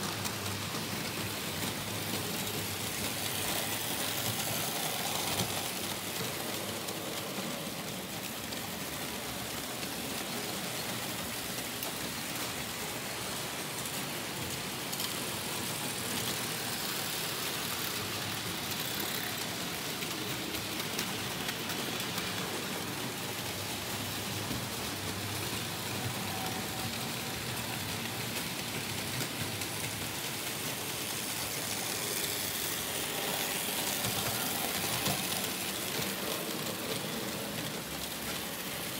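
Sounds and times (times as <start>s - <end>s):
model train wheels rattling on rails: 0.0s - 38.9s.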